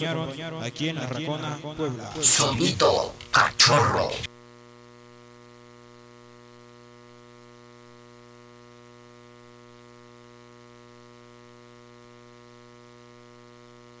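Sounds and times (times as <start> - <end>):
electrical mains hum: 0.0 - 4.3.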